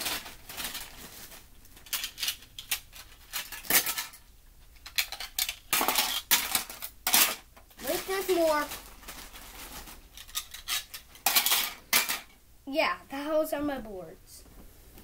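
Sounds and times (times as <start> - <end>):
plastic pegboards clacking: 1.8 - 4.2, 4.8 - 8.8.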